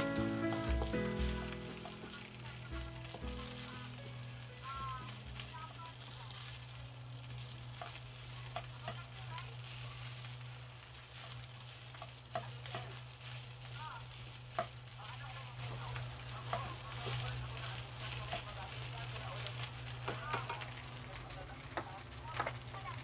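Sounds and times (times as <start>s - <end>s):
rice sizzling in a frying pan: 0.0s - 23.0s
spatula ticking against pan: 7.8s - 9.1s, 11.9s - 13.0s, 14.5s - 14.8s.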